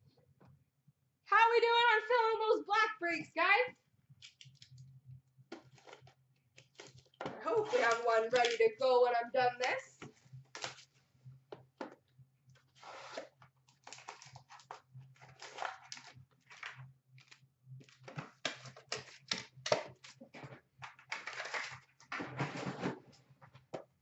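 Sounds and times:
cardboard box rustling and scraping: 22.1 - 23.0.

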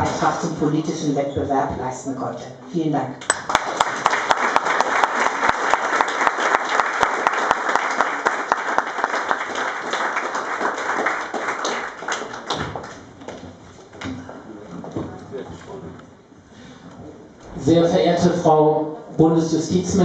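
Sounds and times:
audience applauding: 3.3 - 13.4.

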